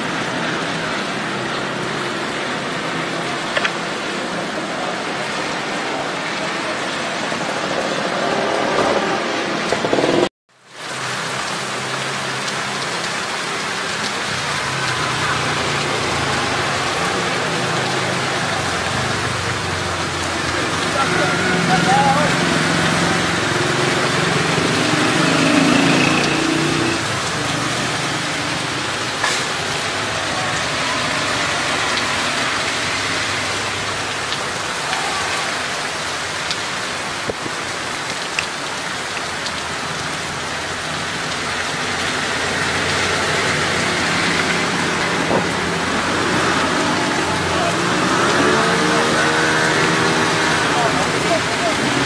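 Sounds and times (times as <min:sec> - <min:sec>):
heavy rain splashing on street: 0:00.0 - 0:52.0
vehicle engine passing: 0:14.8 - 0:36.4, 0:42.0 - 0:52.0.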